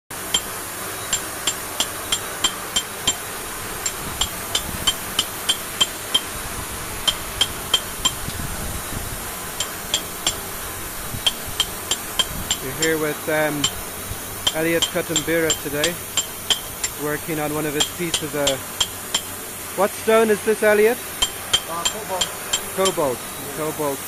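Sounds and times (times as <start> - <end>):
hammer striking steel chisel: 0.3 - 6.4, 7.0 - 8.4, 9.6 - 10.5, 11.2 - 12.9, 13.5 - 13.8, 14.4 - 17.0, 17.6 - 19.4, 21.2 - 23.1.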